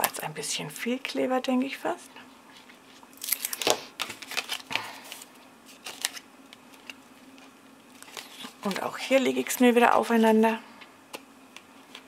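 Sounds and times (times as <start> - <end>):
cardstock rustling: 3.2 - 10.3.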